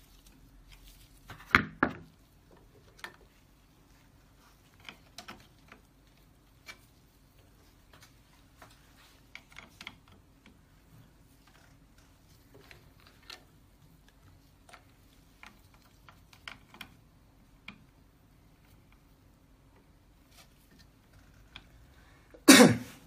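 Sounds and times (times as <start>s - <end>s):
faint steady hum: 0.0s - 23.0s
plastic parts clicking and ticking: 4.6s - 7.0s, 9.1s - 19.1s.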